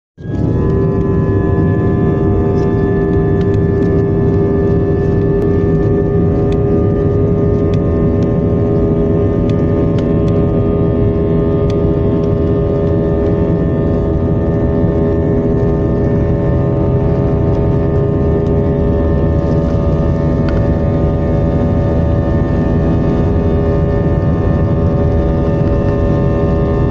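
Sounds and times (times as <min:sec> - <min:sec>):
jet engines rumble and whine: 0:00.2 - 0:26.9.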